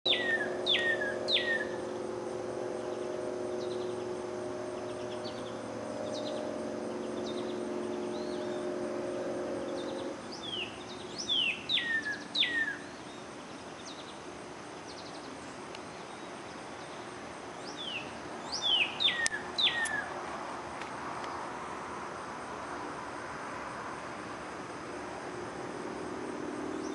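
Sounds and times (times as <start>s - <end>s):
bird whistling song: 0.0s - 14.1s, 17.6s - 20.1s
steady low hum: 0.0s - 26.9s.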